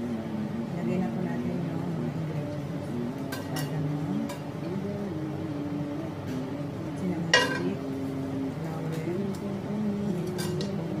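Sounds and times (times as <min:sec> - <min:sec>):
utensil clinking against plate: 0:07.4 - 0:07.8, 0:10.2 - 0:10.8.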